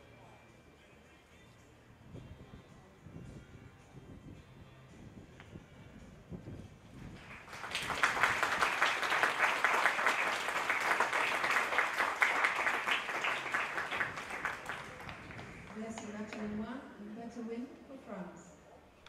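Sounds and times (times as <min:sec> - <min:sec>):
spectators applauding: 0:07.2 - 0:16.1.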